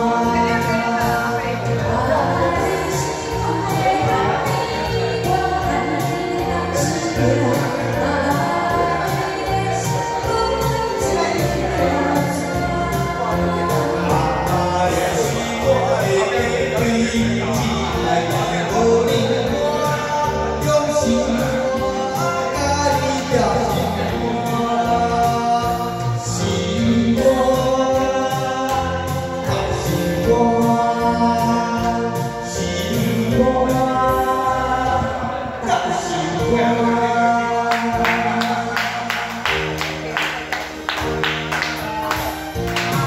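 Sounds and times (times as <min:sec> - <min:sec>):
karaoke backing music: 0:00.0 - 0:43.0
man and woman singing duet: 0:00.0 - 0:43.0.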